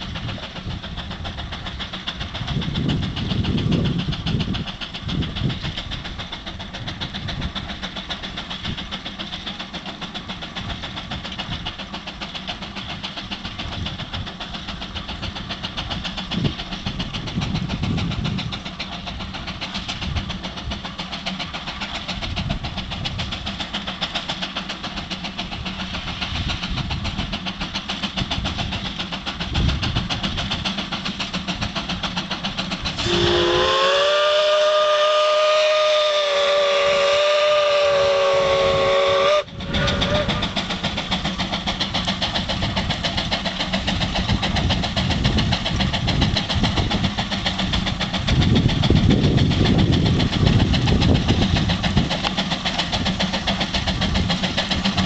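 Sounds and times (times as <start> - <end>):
steam engine exhaust chuffing: 0.0 - 55.0
steam whistle blowing: 33.0 - 40.4.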